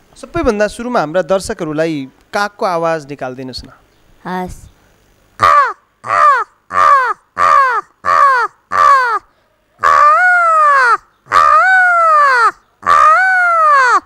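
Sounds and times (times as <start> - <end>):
woman imitating crow caws: 5.4 - 14.0.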